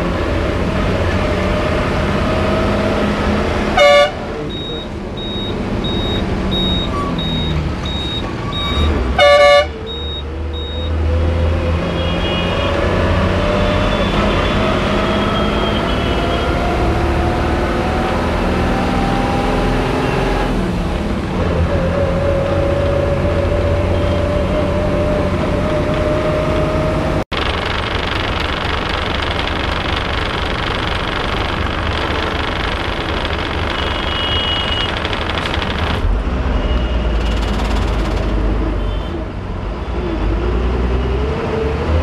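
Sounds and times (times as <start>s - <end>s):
bus engine accelerating: 0.0s - 42.0s
horn blast: 3.8s - 4.3s, 9.2s - 9.7s
high repeating beep: 3.9s - 11.0s.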